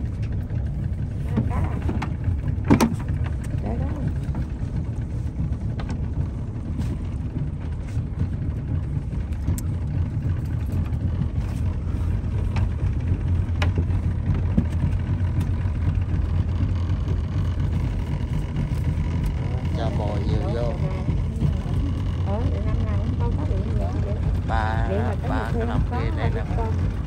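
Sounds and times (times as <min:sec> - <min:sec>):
boat motor running: 0:00.0 - 0:27.0.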